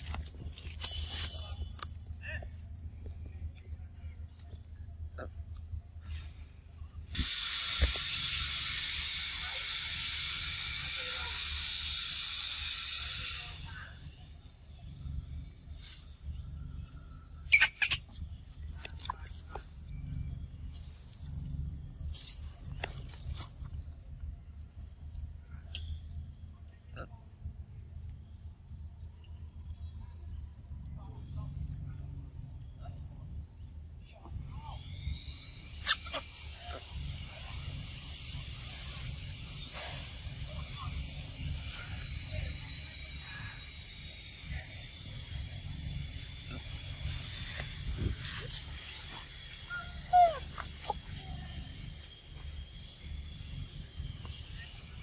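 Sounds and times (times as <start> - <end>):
insect chirping: 0.0 - 55.0
steady low rumble: 0.0 - 55.0
steady high hiss: 7.1 - 14.2.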